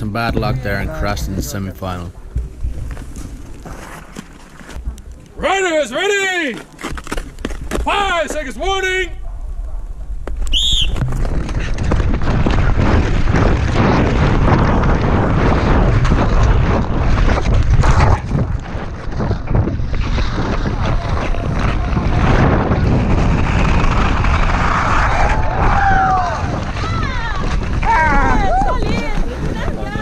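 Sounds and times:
ice skate blades scraping: 2.7 - 5.0, 6.3 - 8.5, 10.2 - 30.0
wind rushing on microphone: 9.4 - 30.0.

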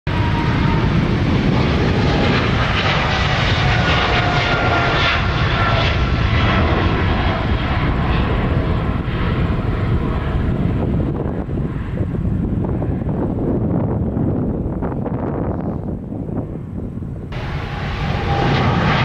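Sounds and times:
jet engines rumbling: 0.1 - 19.0
engine whining tones: 17.3 - 19.0.

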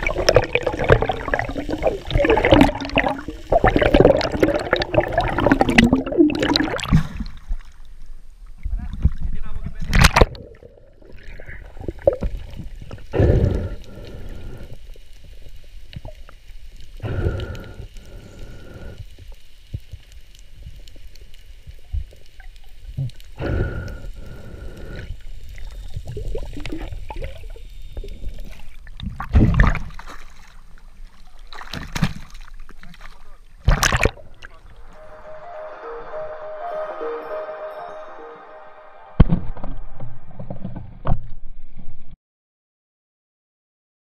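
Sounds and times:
water splashing at surface: 0.0 - 7.8
muffled underwater water noise: 0.0 - 35.0
short steady high tone: 34.7 - 40.4.

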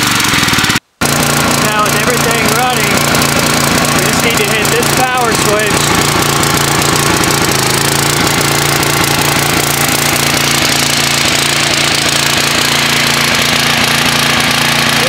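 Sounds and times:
generator engine running: 0.0 - 15.0.

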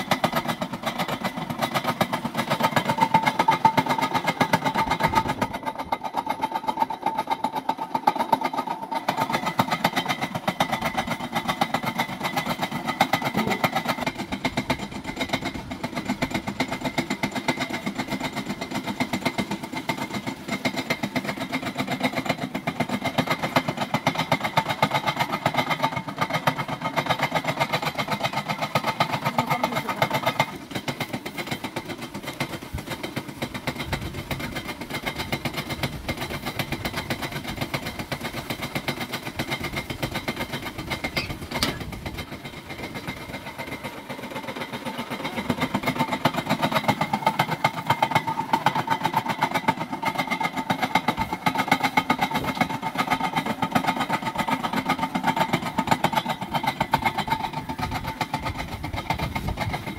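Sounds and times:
generator rig chugging: 0.0 - 59.9.

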